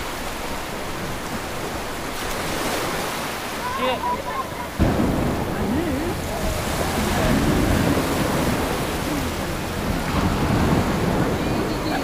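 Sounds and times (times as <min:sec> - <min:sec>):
waves washing onto beach: 0:00.0 - 0:12.0
faint voices: 0:03.6 - 0:12.0
wind rumble on microphone: 0:04.2 - 0:12.0.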